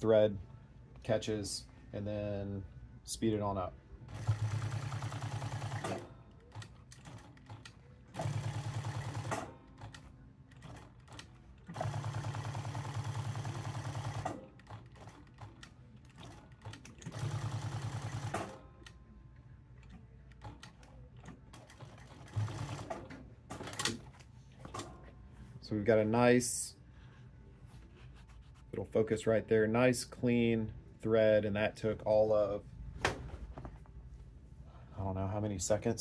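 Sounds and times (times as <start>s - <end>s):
sewing machine stitching leather: 4.1s - 18.6s, 20.4s - 24.8s.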